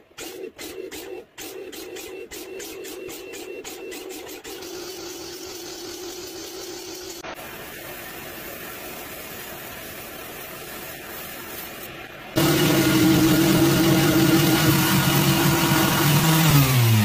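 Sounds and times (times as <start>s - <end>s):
steady hum: 12.4s - 16.2s.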